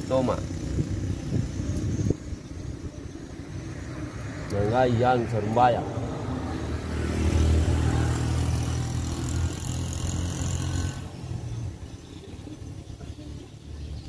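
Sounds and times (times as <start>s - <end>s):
motor vehicle engine running: 0.0s - 14.0s.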